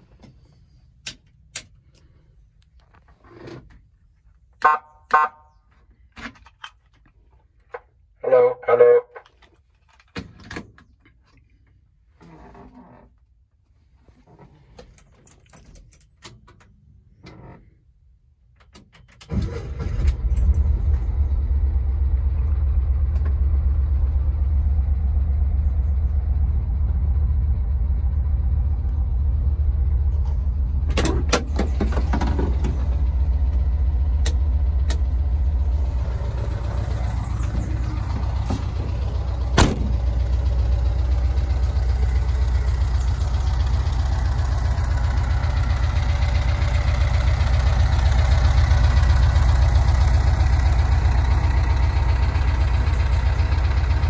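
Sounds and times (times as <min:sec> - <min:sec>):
van engine starting and idling: 0:00.0 - 0:54.0
faint clicks and handling noise: 0:00.1 - 0:04.6.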